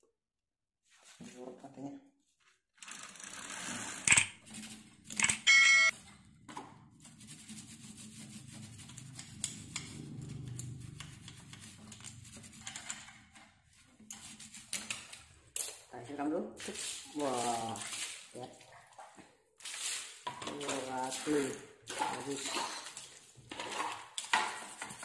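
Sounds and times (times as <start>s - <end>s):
toothbrush scrubbing chain: 4.0s - 15.9s, 16.6s - 18.4s, 19.7s - 25.0s
electronic beeping tone: 5.2s - 5.9s.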